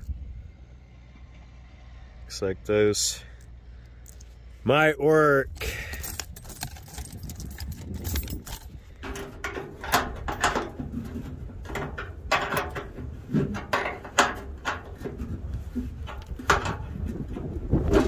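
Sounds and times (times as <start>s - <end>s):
metallic clicks and scrapes of bolt: 5.5s - 17.2s.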